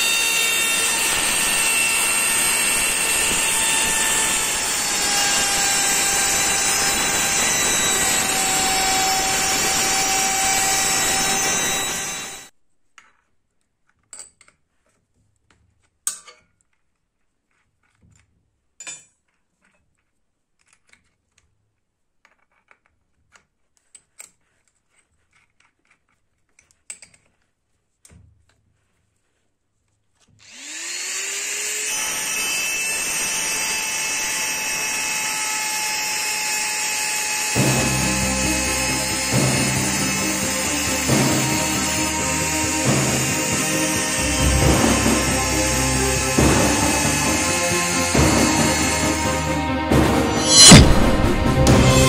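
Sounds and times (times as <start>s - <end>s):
rotary tool grinding steel: 0.0s - 12.5s, 30.4s - 49.6s, 50.3s - 51.1s.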